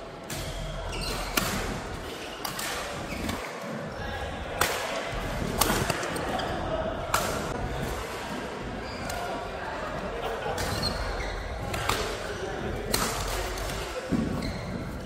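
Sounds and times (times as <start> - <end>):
rackets hitting shuttlecock: 12.9 - 14.3.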